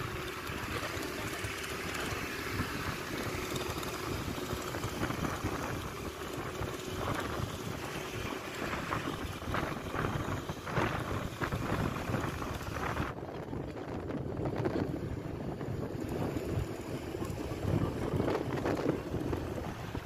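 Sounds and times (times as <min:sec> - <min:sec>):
vehicle road noise: 0:00.0 - 0:20.0
wind over microphone: 0:00.0 - 0:20.0.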